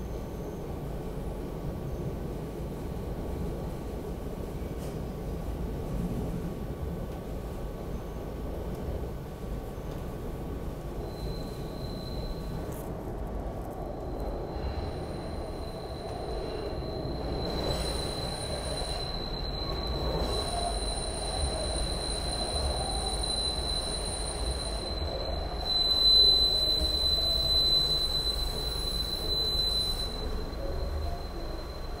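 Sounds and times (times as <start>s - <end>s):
rumble of wheels on rail: 0.0s - 32.0s
high-pitched wheel squeal: 11.0s - 12.9s, 13.8s - 32.0s.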